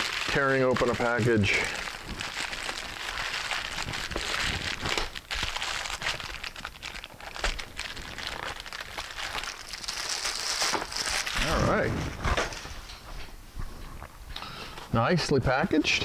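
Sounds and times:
plastic mailer bag crinkling: 0.0s - 12.6s
plastic tearing: 0.0s - 12.6s.

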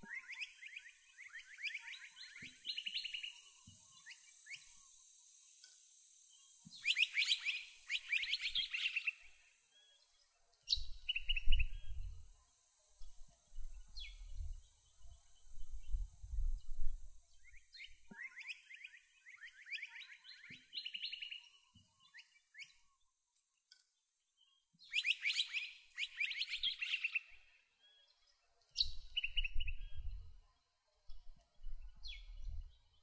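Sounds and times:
wind rumble on microphone: 10.7s - 12.3s, 13.5s - 17.2s, 28.8s - 30.4s, 31.1s - 33.0s.

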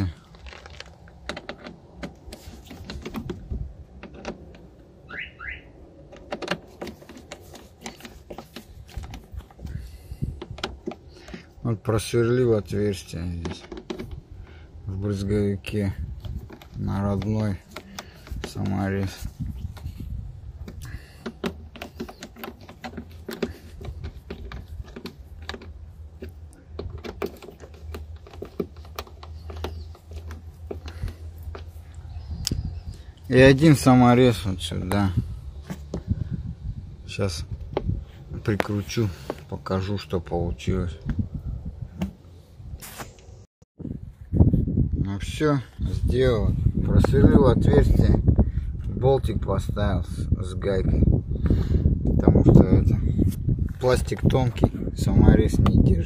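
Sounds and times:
steady low rumble: 22.6s - 42.8s.

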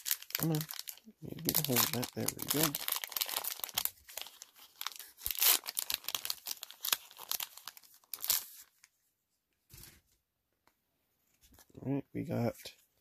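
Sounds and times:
wrapper tearing and crinkling: 0.0s - 8.7s.

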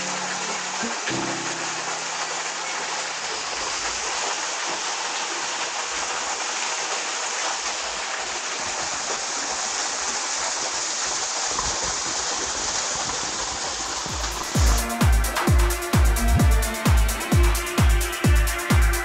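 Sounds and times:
stream running over rocks: 0.0s - 14.9s.

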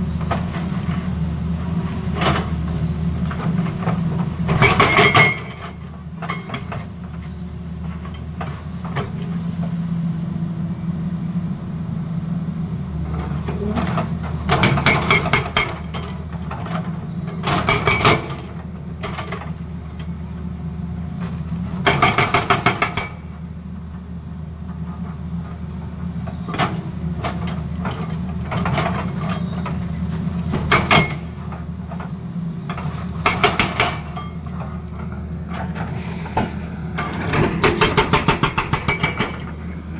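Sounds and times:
excavator diesel engine running: 0.0s - 39.9s
hydraulic breaker hammering rock: 17.4s - 19.5s, 21.8s - 23.3s, 30.5s - 31.6s, 32.6s - 34.8s, 35.6s - 39.9s.

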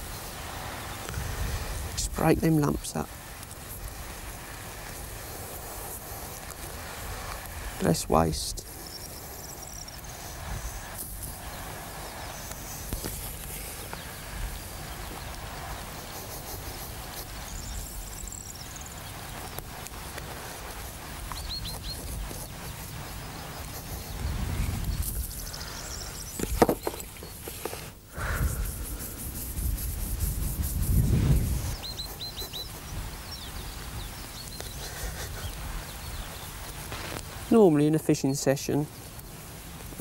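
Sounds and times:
wind rumbling on microphone: 0.0s - 27.4s, 28.2s - 37.5s
high bird chirps: 31.6s - 34.8s.

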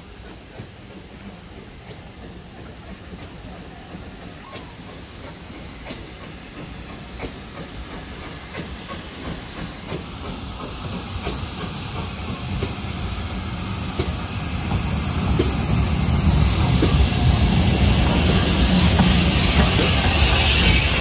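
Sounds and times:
sharp locomotive clicks: 0.0s - 21.0s
steam hissing: 0.0s - 21.0s.

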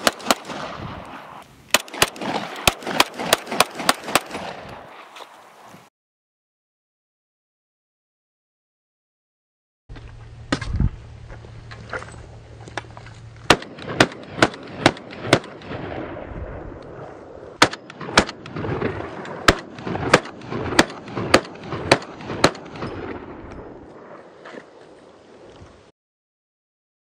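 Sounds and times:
pistol shots: 0.0s - 4.9s, 13.5s - 16.1s, 17.6s - 24.2s.

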